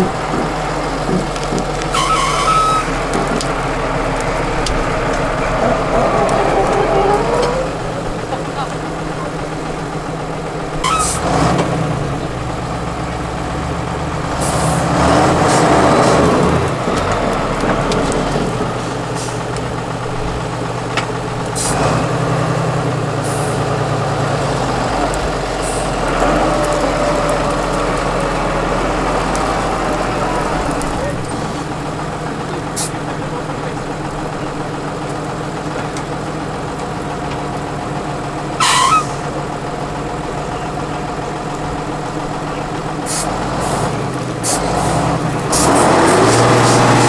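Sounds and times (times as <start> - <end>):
diesel truck engine revving: 0.0 - 47.0
air brake hisses: 43.1 - 43.8.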